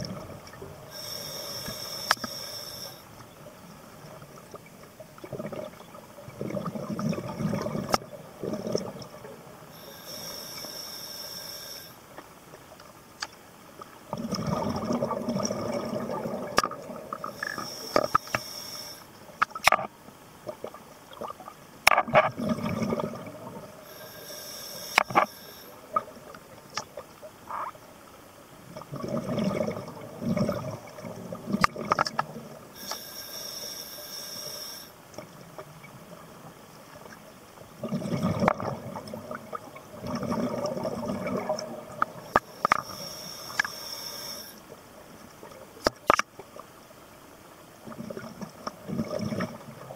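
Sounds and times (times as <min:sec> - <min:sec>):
regulator inhale hiss: 0:00.9 - 0:03.2, 0:09.7 - 0:12.2, 0:17.3 - 0:19.2, 0:23.8 - 0:26.0, 0:32.8 - 0:35.0, 0:42.3 - 0:44.7
bubbles bursting on exhale: 0:14.1 - 0:16.6.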